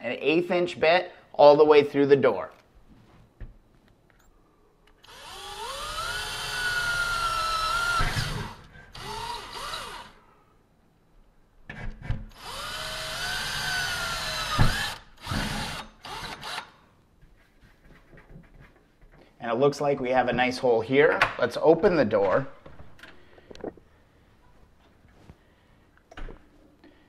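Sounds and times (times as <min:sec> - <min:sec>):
cordless drill drilling metal: 0:05.0 - 0:10.2, 0:12.3 - 0:16.8.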